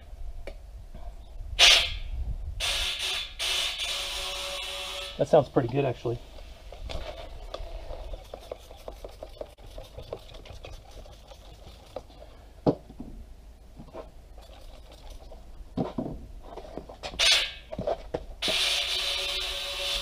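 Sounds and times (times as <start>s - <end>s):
water spraying: 6.9s - 12.4s, 14.4s - 15.4s.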